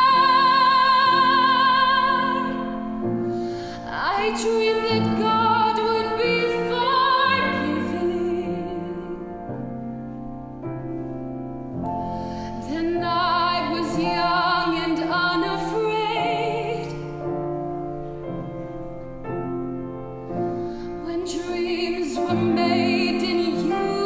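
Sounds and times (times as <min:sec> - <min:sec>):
woman singing operatically: 0:00.0 - 0:02.7, 0:21.1 - 0:24.0
grand piano: 0:00.0 - 0:24.0.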